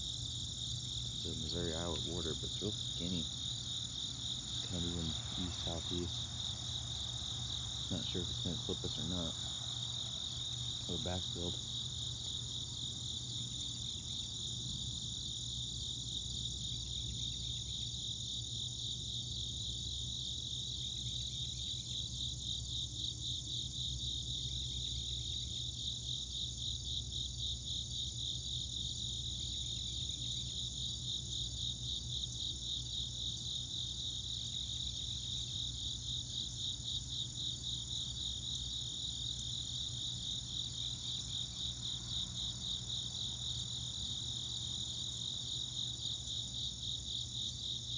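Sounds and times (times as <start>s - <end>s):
insects chirring: 0.0s - 47.9s.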